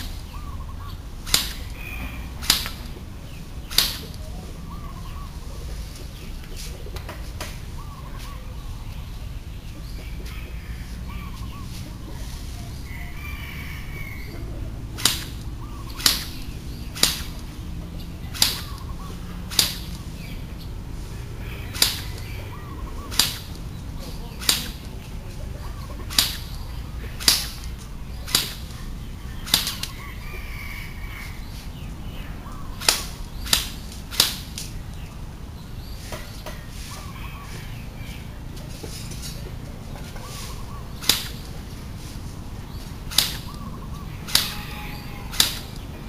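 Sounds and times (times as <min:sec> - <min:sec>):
airsoft gun shots snapping: 0:01.2 - 0:01.8, 0:02.4 - 0:03.0, 0:03.6 - 0:04.2, 0:15.0 - 0:17.6, 0:18.3 - 0:20.1, 0:21.7 - 0:22.3, 0:23.1 - 0:23.7, 0:24.3 - 0:24.9, 0:26.0 - 0:26.6, 0:27.2 - 0:28.8, 0:29.4 - 0:30.0, 0:32.8 - 0:34.8, 0:41.0 - 0:41.5, 0:43.1 - 0:43.6, 0:44.2 - 0:44.6, 0:45.3 - 0:45.9.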